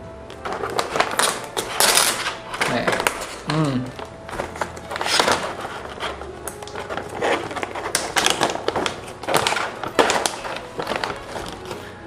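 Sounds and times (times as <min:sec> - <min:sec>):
plastic pouch crinkling: 0:00.3 - 0:12.0.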